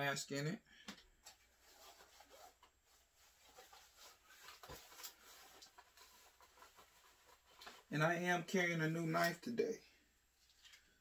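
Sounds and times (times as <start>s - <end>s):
clothing rubbing: 1.5s - 7.9s.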